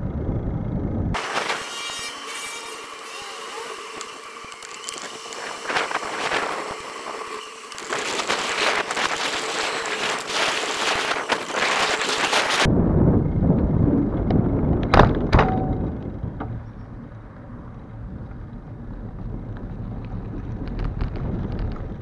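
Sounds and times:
bicycle tyre noise on road: 0:03.8 - 0:22.0
bicycle rattling and knocking: 0:13.6 - 0:22.0.

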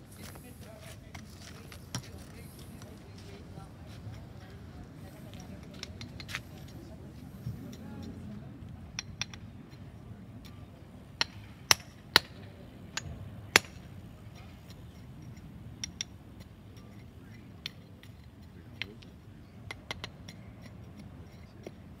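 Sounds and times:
hammer tapping stone cubes: 0:13.0 - 0:13.8, 0:17.6 - 0:21.8.

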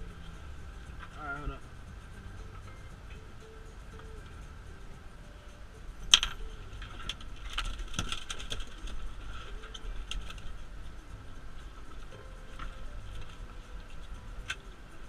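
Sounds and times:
light clicks and rattles of net: 0:06.1 - 0:10.9.

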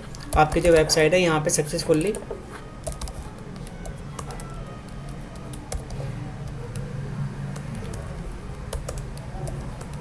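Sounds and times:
computer keyboard clicks: 0:01.9 - 0:06.9, 0:07.5 - 0:10.0
steady low hum: 0:02.2 - 0:10.0.

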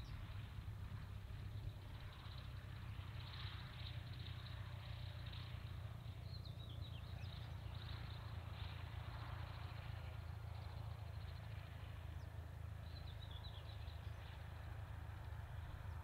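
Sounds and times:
propeller aircraft engine droning: 0:00.0 - 0:16.0
birds chirping: 0:06.1 - 0:08.6.

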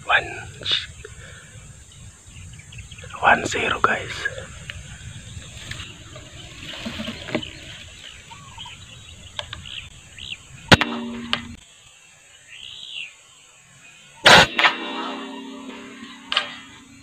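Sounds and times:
small birds chirping: 0:00.0 - 0:14.3
faint outdoor background noise: 0:00.0 - 0:17.0
air rifle shot: 0:10.7 - 0:11.6, 0:14.2 - 0:17.0.

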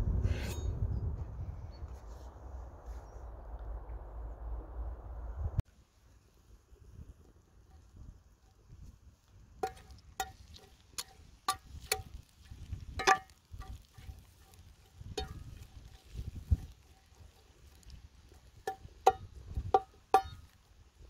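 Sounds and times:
low rumble: 0:00.0 - 0:05.6
cleaver knocking on metal pan: 0:18.6 - 0:20.4.

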